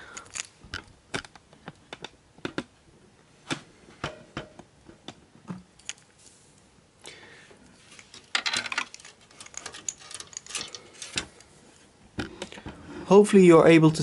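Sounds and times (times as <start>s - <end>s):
hands handling cables and plastic: 0.2s - 2.8s, 7.6s - 12.7s.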